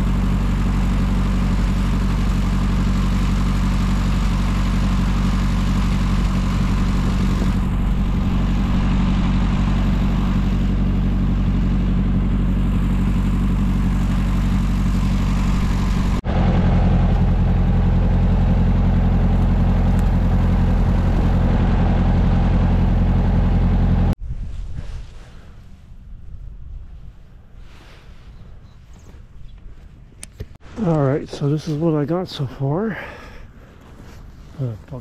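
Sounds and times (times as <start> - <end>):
tractor engine running: 0.0 - 24.2
faint low rumble: 5.0 - 32.0.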